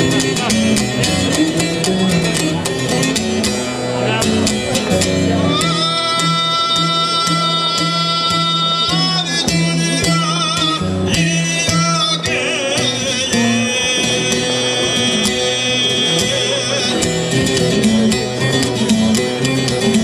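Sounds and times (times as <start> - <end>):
plucked lute: 0.0 - 20.0
man singing with vibrato: 5.3 - 20.0.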